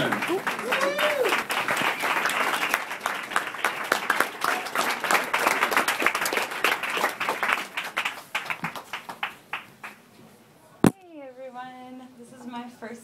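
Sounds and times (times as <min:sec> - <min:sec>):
audience applauding: 0:00.0 - 0:10.0.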